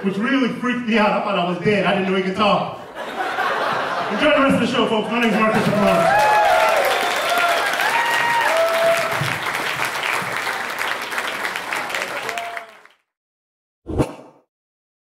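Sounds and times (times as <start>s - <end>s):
audience applauding and cheering: 5.5s - 13.0s.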